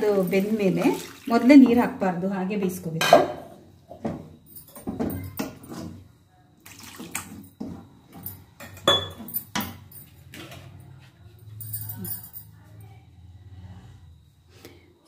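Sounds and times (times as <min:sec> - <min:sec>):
liquid sloshing in a pan: 0:00.0 - 0:01.9, 0:06.6 - 0:08.0.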